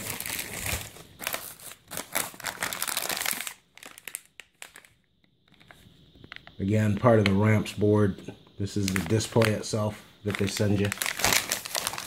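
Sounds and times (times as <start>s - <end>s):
paper and plastic crinkling: 0.0s - 5.8s, 8.8s - 12.0s.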